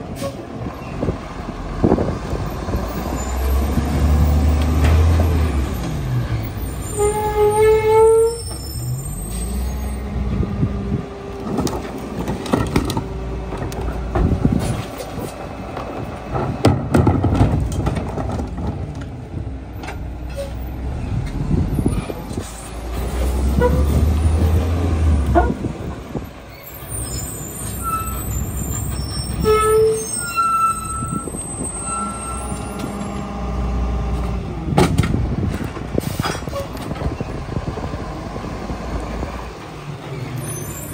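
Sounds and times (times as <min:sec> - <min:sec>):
garbage truck diesel engine: 0:00.0 - 0:40.9
metal clanks and bangs: 0:16.3 - 0:19.1
short high squeals: 0:26.6 - 0:33.0.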